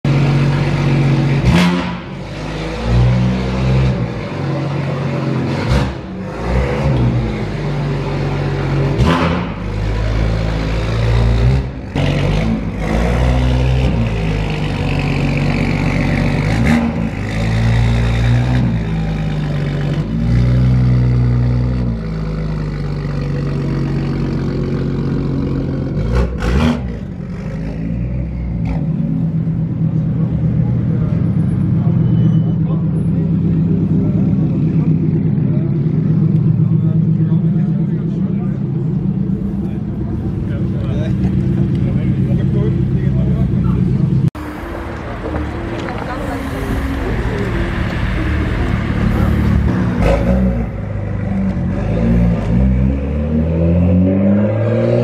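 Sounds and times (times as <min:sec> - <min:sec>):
car engine revving: 0:32.6 - 0:55.0
exhaust cracks: 0:33.4 - 0:52.6.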